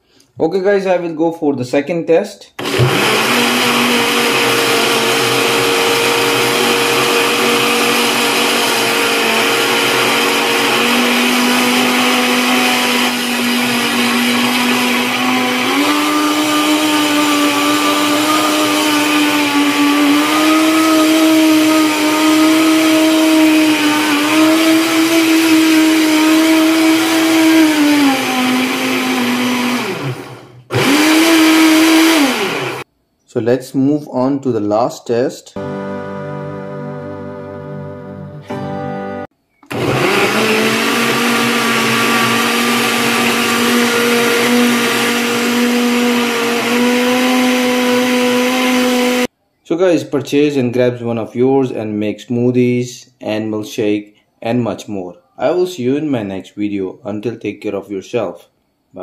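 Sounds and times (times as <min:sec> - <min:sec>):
blender motor whining: 0:02.6 - 0:32.9, 0:39.6 - 0:49.3.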